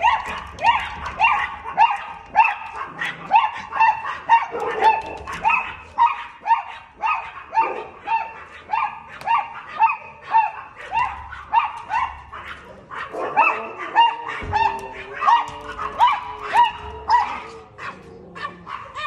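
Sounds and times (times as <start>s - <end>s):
small dog barking: 0.0s - 19.0s.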